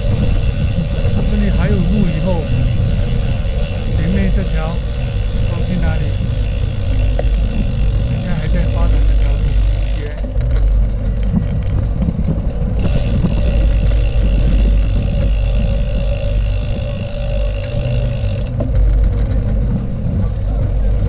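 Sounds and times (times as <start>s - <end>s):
high steady whine: 0.0s - 21.0s
wind buffeting microphone: 0.0s - 21.0s.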